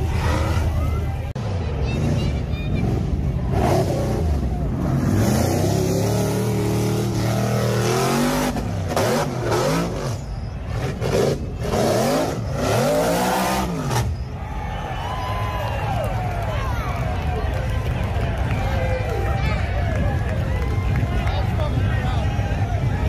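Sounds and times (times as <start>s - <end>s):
buggy engine revving: 0.0s - 14.6s.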